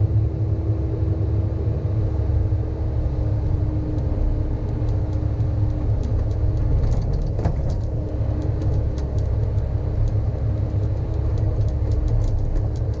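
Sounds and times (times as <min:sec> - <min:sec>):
excavator diesel engine rumble: 0:00.0 - 0:13.0
light clicks: 0:03.9 - 0:13.0.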